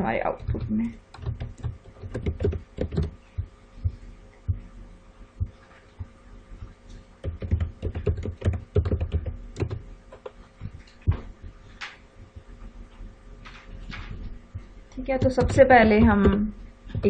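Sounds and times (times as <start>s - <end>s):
typing on computer keyboard: 0.4s - 3.2s, 7.2s - 10.3s.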